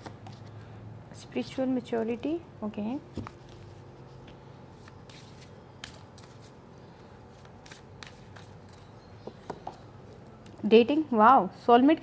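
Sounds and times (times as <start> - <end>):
cards shuffling: 3.2 - 6.6, 7.3 - 8.9.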